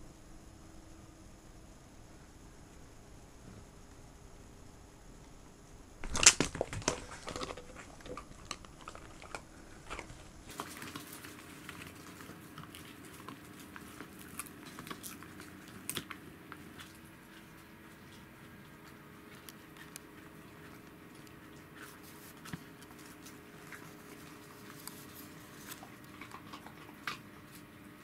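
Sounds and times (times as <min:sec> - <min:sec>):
dogs crunching hard treats: 0:06.0 - 0:27.8.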